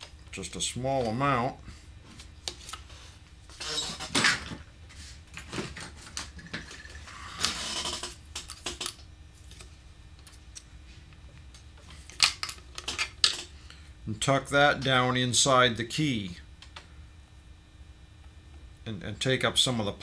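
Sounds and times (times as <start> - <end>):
handling noises at a workbench: 2.0 - 13.5.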